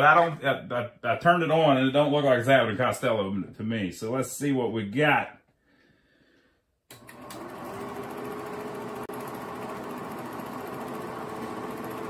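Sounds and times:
film projector clatter: 6.9 - 12.0
projector motor hum: 6.9 - 12.0.

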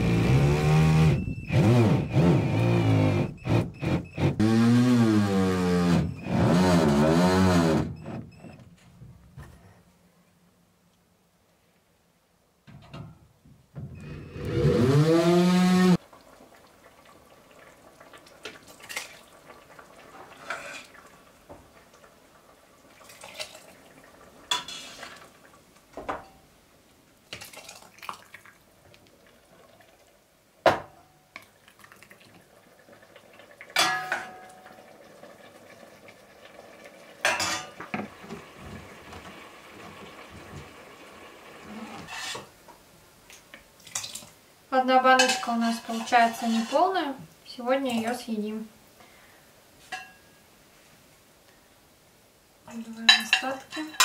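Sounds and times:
pot spoon and glass jars clinking: 37.2 - 37.8, 45.2 - 46.8, 49.9 - 50.3, 53.1 - 54.0.

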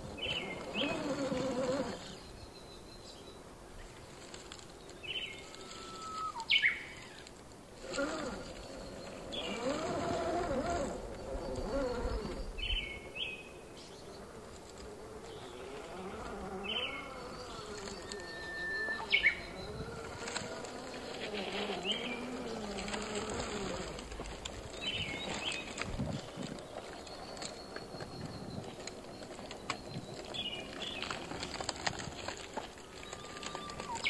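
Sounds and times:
electric motor whining: 0.0 - 2.2, 7.8 - 12.8, 14.4 - 26.6
birds chirping: 0.0 - 34.0.

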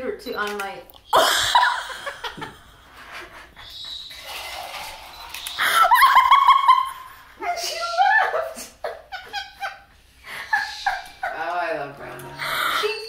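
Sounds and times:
woman laughing: 1.2 - 3.8, 5.6 - 11.5.

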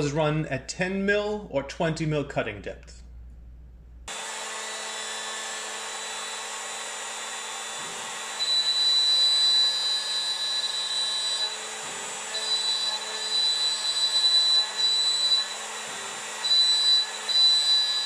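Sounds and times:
milling spindle whine: 5.4 - 18.0.

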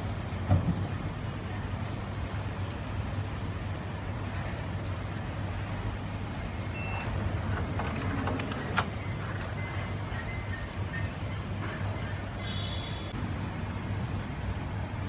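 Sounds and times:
faint short beeps: 6.7 - 7.2.

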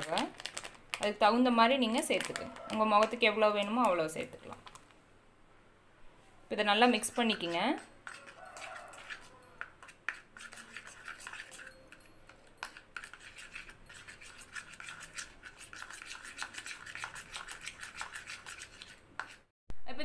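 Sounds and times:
metal spoon scraping plastic bowl: 1.9 - 4.6, 6.8 - 19.5.

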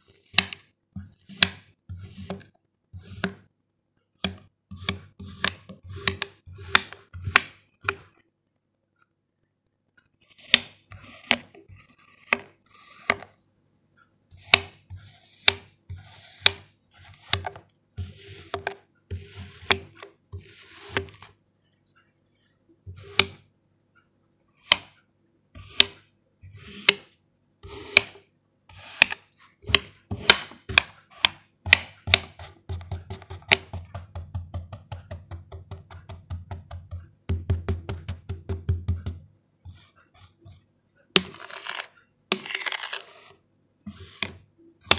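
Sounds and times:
knife chopping on cutting board: 1.3 - 3.4, 4.2 - 8.1, 12.2 - 13.3, 14.4 - 21.3, 23.0 - 23.4, 25.6 - 27.0, 27.6 - 39.8, 43.9 - 44.9.

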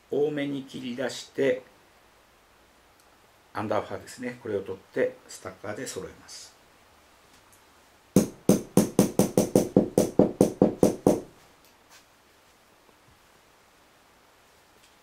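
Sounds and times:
hair stacker tapping on bench: 8.2 - 11.3.

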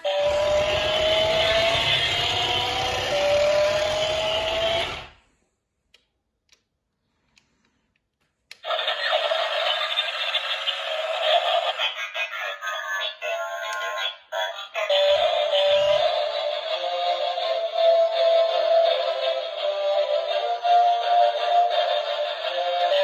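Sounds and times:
toy speaker electronic music: 0.0 - 5.0, 8.6 - 23.0
synthesised voice: 8.6 - 16.9.

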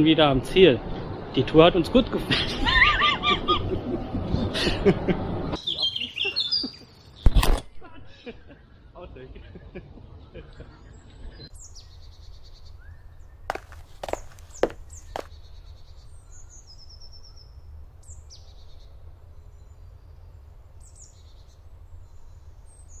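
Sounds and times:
birds singing: 5.5 - 7.4, 9.9 - 23.0.

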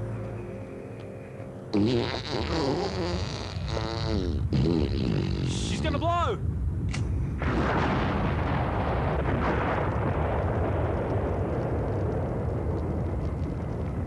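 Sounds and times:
explosion rumbling: 6.4 - 14.0.

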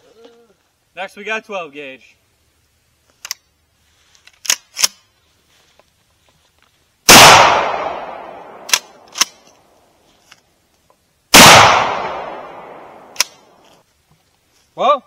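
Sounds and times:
shotgun blasts: 7.1 - 9.2, 11.3 - 13.5
shotgun pump racking clicks: 8.7 - 9.6.

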